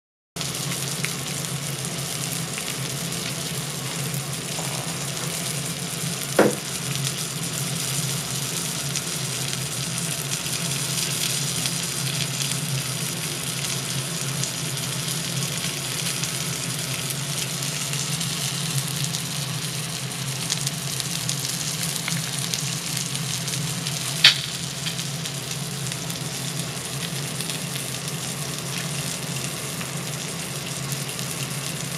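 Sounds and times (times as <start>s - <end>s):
fish sizzling on a grill: 0.4s - 31.9s
sharp pop: 6.4s - 6.7s, 24.2s - 24.6s.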